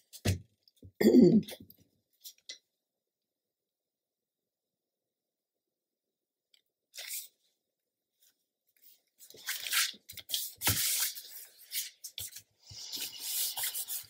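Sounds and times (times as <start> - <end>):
paper rustling and sliding: 9.2 - 14.0.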